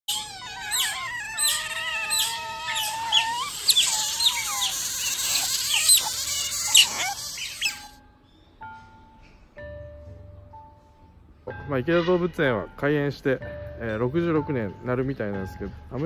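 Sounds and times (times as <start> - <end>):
otters squealing and chirping: 0.0 - 8.0.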